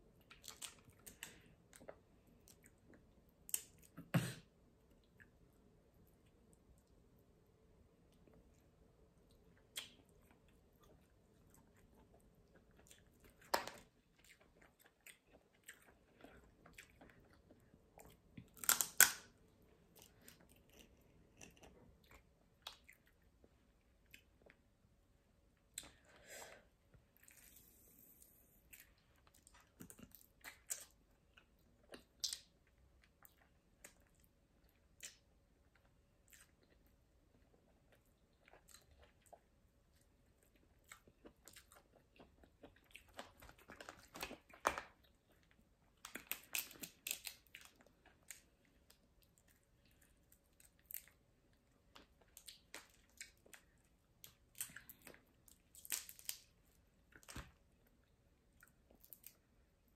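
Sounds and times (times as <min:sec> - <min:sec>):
chewing and crunching: 0:08.1 - 0:24.7, 0:28.6 - 0:59.6
crab shell cracking: 0:18.6 - 0:19.3.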